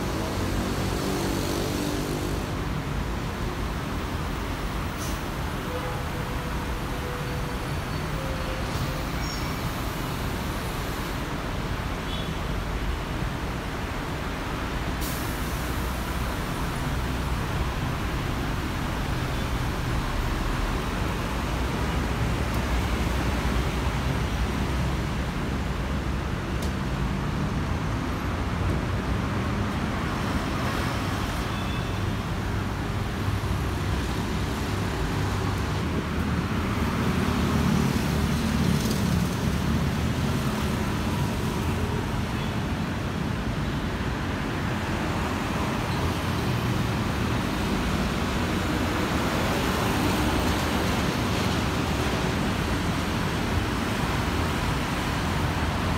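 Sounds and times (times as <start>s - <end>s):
car and motorbike engines: 0.0s - 7.2s, 32.2s - 55.9s.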